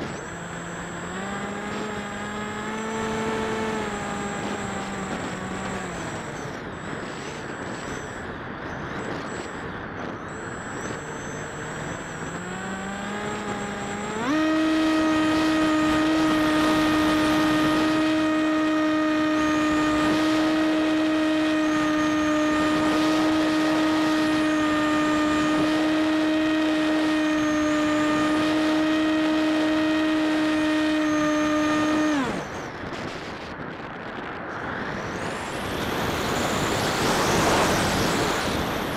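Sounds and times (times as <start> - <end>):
electric motor and propeller whine: 0.0 - 38.9
wind rushing over microphone: 0.0 - 38.9.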